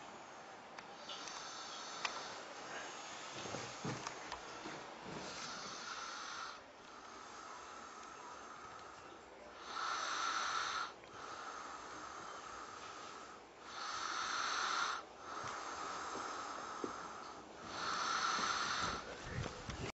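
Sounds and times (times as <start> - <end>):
quiet breathing: 0.0 - 19.9
person snoring: 5.3 - 8.8, 9.6 - 19.1.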